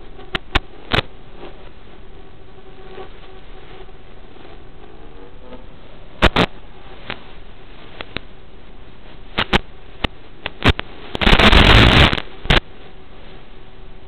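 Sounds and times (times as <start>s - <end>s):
crackling static burst: 0.0s - 14.0s
faint steady hiss: 0.0s - 14.0s
sharp clicks and pops: 0.3s - 1.1s, 6.2s - 7.3s, 7.9s - 8.3s, 9.3s - 12.6s.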